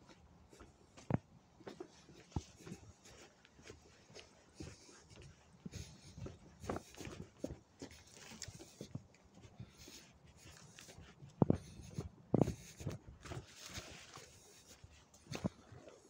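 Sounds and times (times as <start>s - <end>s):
footsteps on dirt path: 0.0s - 16.0s.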